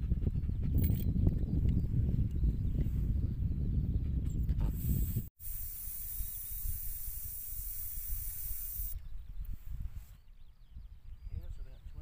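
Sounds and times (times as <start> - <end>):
air hissing from tyre valve: 4.8 - 9.0.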